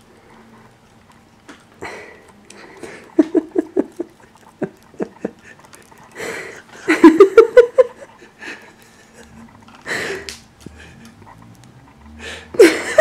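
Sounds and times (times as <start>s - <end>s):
person laughing: 1.9s - 5.6s, 6.2s - 10.9s, 12.5s - 13.0s.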